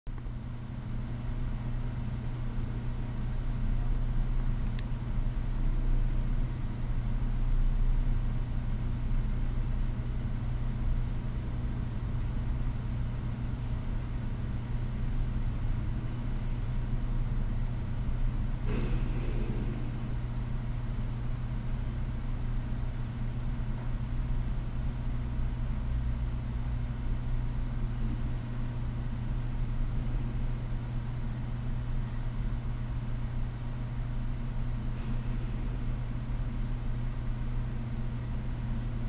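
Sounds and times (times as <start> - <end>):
steady low hum: 0.1 - 39.0
fluctuating low rumble: 18.6 - 21.8.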